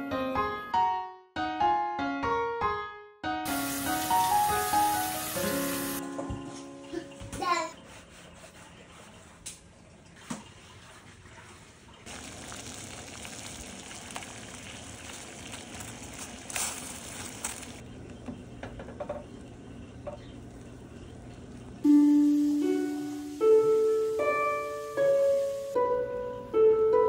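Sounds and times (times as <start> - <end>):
water boiling in a pot: 3.5 - 6.0, 8.8 - 25.8
dough splashing into water: 10.1 - 17.8.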